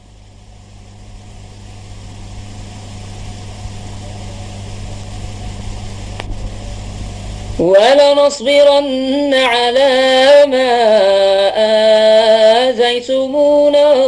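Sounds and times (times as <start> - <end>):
background hiss: 0.0 - 14.0
low hum: 0.0 - 14.0
man chanting: 7.6 - 14.0.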